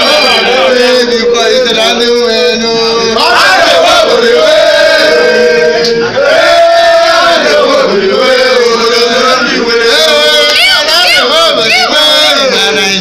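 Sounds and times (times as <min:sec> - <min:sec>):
group of men singing a chant: 0:00.0 - 0:13.0.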